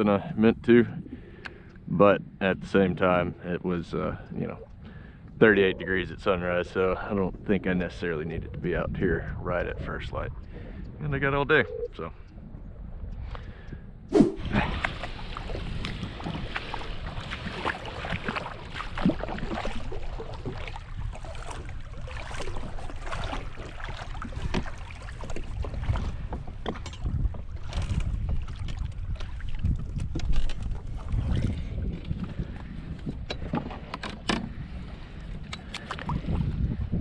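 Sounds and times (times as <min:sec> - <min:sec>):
wind rumbling on microphone: 0:00.0 - 0:37.0
water splashing: 0:14.1 - 0:26.8
gear knocking against plastic kayak: 0:24.4 - 0:31.3.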